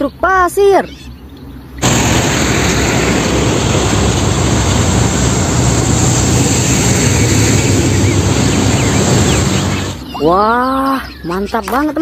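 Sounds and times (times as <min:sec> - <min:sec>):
diesel truck engines rumbling: 0:01.6 - 0:10.8
tyre noise on road: 0:01.8 - 0:10.1.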